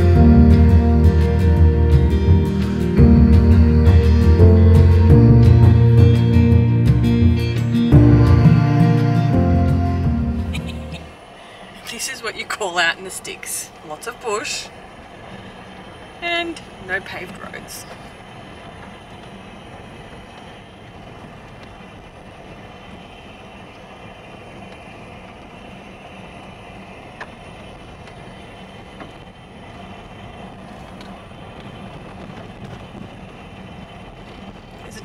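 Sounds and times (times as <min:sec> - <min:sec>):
low engine hum: 0:00.0 - 0:35.0
tyres rumbling on gravel: 0:11.1 - 0:35.0.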